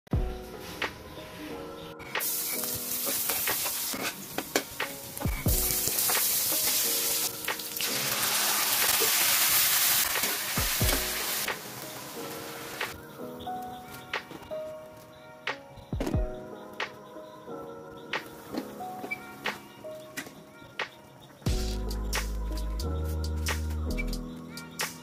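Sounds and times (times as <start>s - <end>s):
background music: 0.1s - 25.0s
garlic and onion sizzling in oil: 2.2s - 12.9s.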